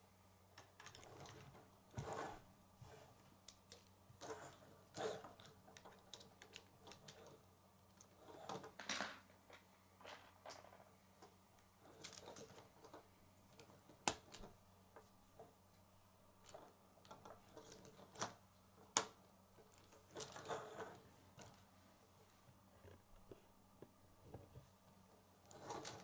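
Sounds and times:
plastic parts rustling: 3.5s - 10.9s, 11.8s - 13.0s, 25.4s - 26.0s
plastic pieces clicking: 5.0s - 7.3s.

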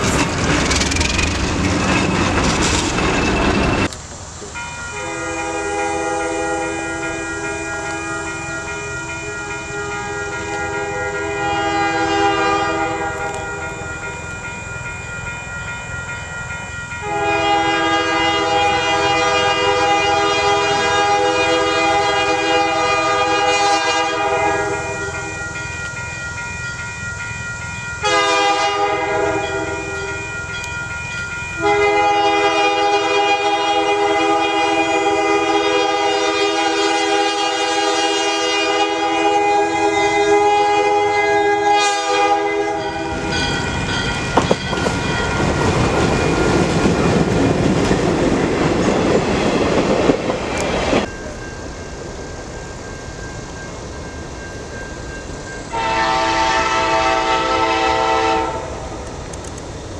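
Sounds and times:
diesel locomotive air horn blasts: 4.9s - 13.6s, 17.0s - 25.4s, 28.0s - 30.2s, 31.6s - 43.5s, 55.7s - 58.9s.

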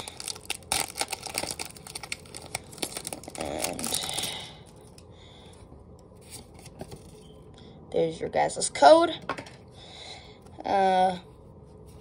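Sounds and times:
plastic wrapping crinkling: 0.0s - 4.4s.

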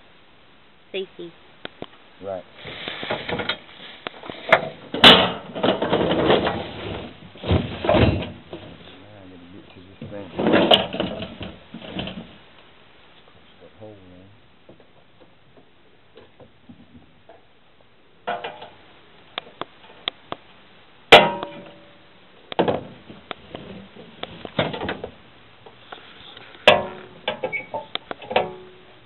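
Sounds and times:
metal boxes clinking and knocking: 4.5s - 8.7s, 21.1s - 21.9s, 26.6s - 28.9s
loud metal bangs: 4.9s - 6.7s, 21.1s - 21.9s.

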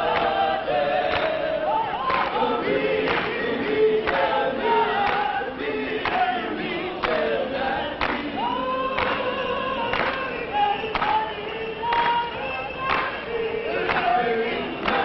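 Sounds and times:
choir singing: 0.0s - 15.0s.

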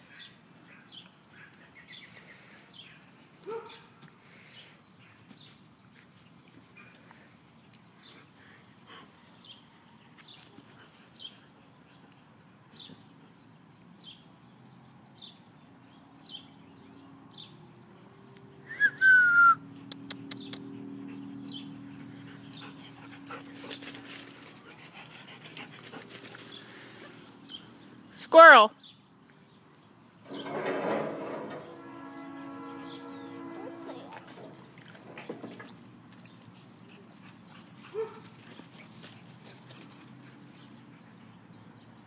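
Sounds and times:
dog yelping: 37.9s - 38.2s.

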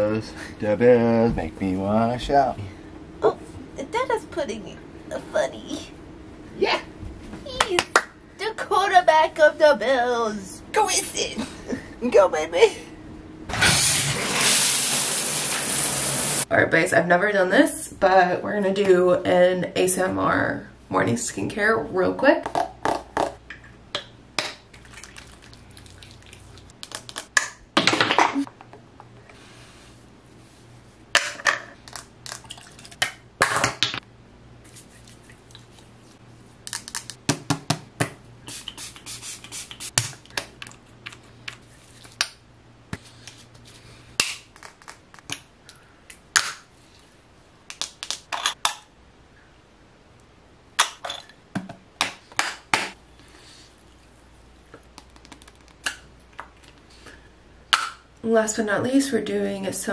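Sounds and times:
hands rubbing product on skin: 34.7s - 36.1s, 38.5s - 42.2s, 54.9s - 55.8s.

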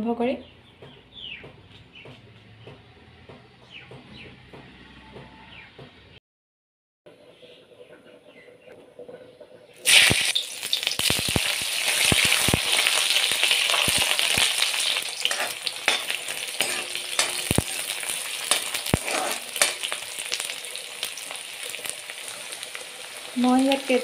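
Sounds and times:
onions sizzling in hot oil: 9.8s - 24.0s
ladle knocking and scraping pan: 14.8s - 20.1s.

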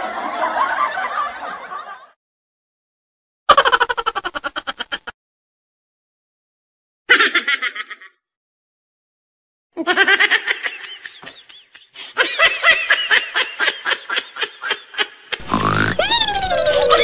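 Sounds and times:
high-pitched giggling laughter: 3.5s - 5.2s, 7.1s - 8.2s, 9.8s - 17.0s.

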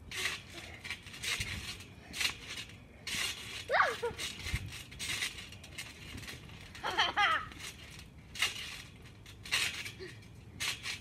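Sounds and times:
trampoline springs clinking: 0.0s - 11.0s
high-pitched cry: 3.7s - 4.4s.

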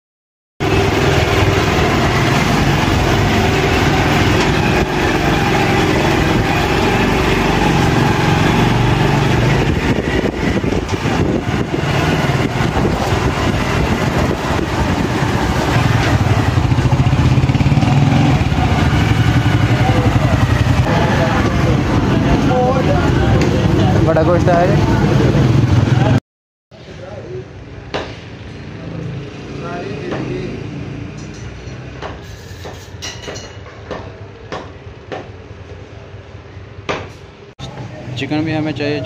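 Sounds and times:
motorcycle engine running: 0.6s - 26.2s.

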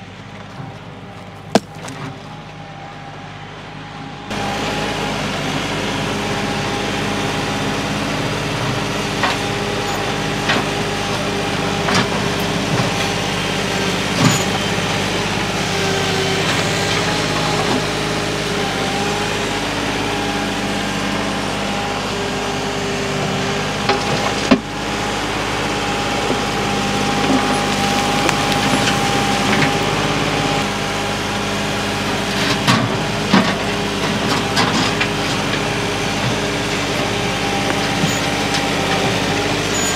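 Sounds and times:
tractor diesel engine running: 0.0s - 39.9s
falling dirt and rocks: 0.4s - 2.4s, 26.2s - 29.9s
loader bucket knocks: 1.5s - 2.2s.

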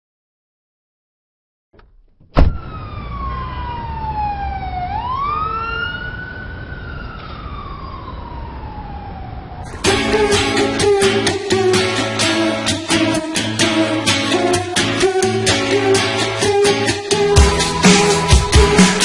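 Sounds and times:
siren wailing: 2.5s - 12.4s.

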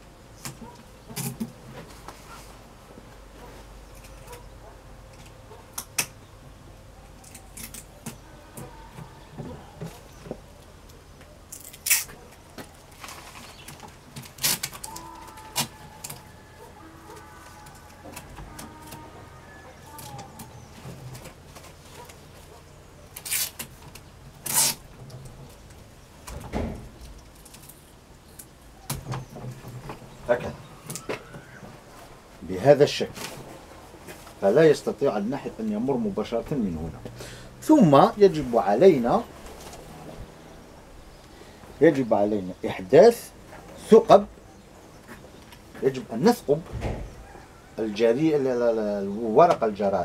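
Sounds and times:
tape handling noises: 7.1s - 19.2s, 19.8s - 26.4s, 27.0s - 32.1s.

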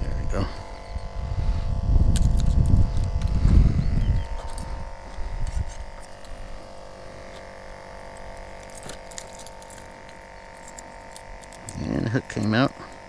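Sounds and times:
wind rumble on microphone: 0.0s - 6.0s
construction machinery hum: 0.0s - 13.0s
light clinks and ticks: 2.1s - 3.4s, 4.0s - 6.4s, 7.2s - 13.0s.

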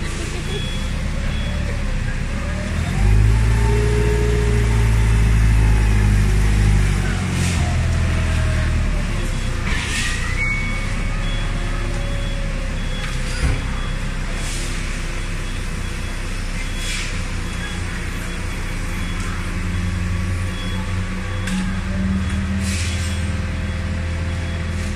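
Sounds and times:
forklift engine running: 0.0s - 24.9s
faint short beeps: 0.4s - 1.9s.

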